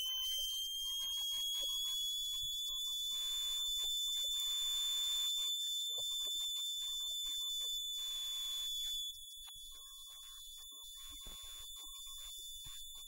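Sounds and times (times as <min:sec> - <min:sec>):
steady high-pitched tone: 0:00.0 - 0:01.8.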